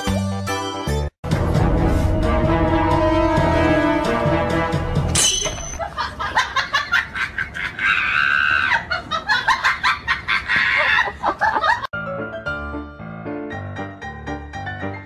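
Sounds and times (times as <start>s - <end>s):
background music: 0.0s - 5.7s, 12.0s - 15.0s.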